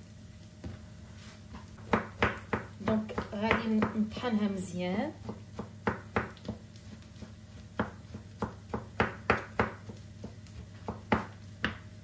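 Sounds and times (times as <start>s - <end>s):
knife chopping on wooden board: 1.5s - 4.1s, 5.1s - 12.0s.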